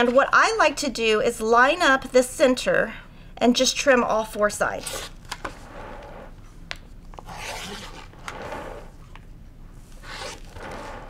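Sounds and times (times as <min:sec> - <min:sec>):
rotary cutter slicing fabric: 0:07.2 - 0:09.0, 0:10.0 - 0:11.0.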